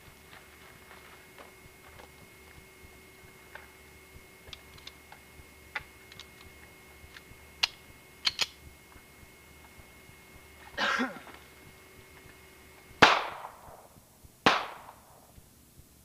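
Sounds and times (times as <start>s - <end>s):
handgun metallic clicks: 7.6s - 8.6s.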